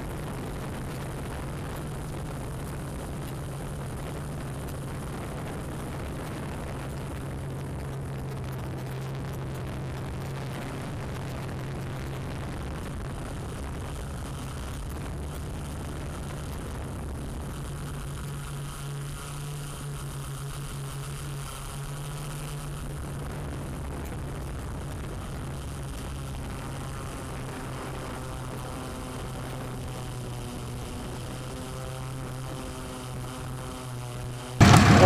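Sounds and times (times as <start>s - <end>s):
drone propellers humming: 34.6s - 35.0s.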